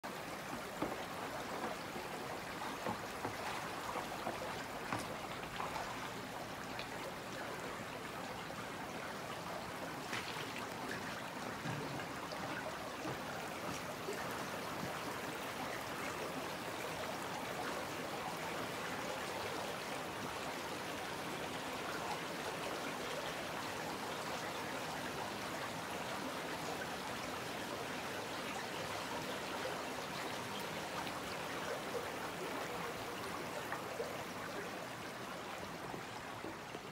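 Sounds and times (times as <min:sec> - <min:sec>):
brook babbling over gravel: 0:00.0 - 0:36.9
small water splashes: 0:00.1 - 0:17.7.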